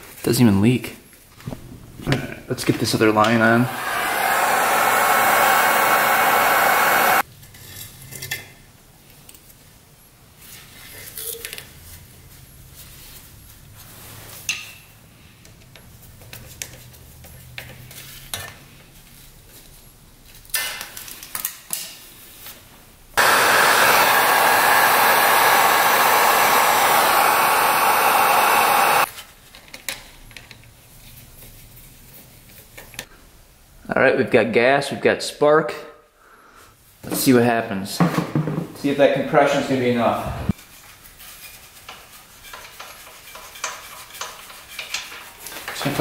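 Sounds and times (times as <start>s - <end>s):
loud blower-like rushing: 3.1s - 7.2s, 23.2s - 29.1s, 40.0s - 40.6s.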